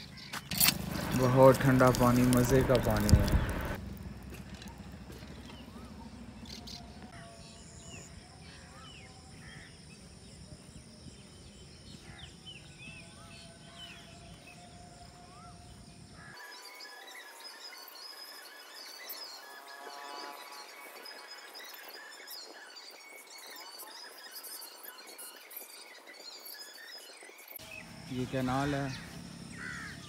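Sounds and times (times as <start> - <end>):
birds chirping: 0.0 - 30.0
low outdoor rumble: 0.6 - 7.2
high insect drone: 7.2 - 30.0.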